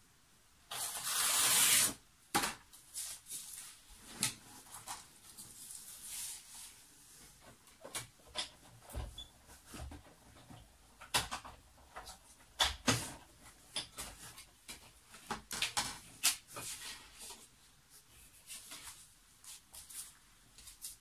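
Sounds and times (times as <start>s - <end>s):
paper and tools clicking and rustling: 7.4s - 17.5s, 18.3s - 21.0s.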